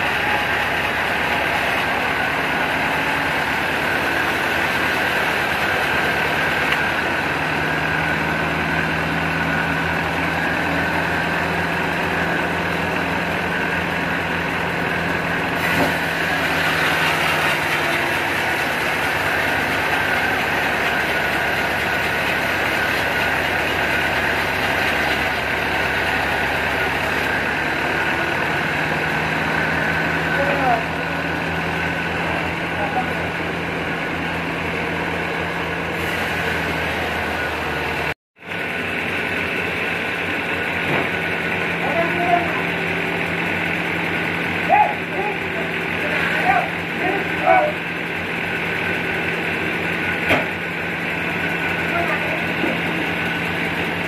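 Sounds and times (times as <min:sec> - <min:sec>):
band saw cutting log: 0:00.0 - 0:54.0.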